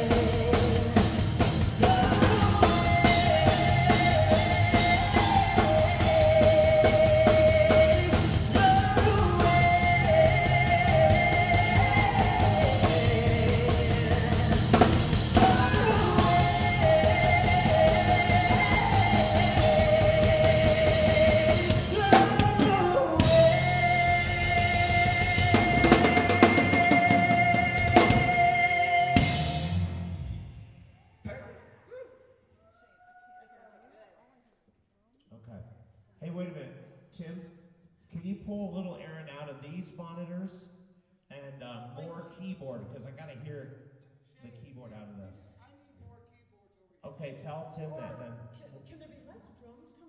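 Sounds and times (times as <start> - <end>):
person singing: 0.0 - 29.7
live band playing: 0.0 - 30.6.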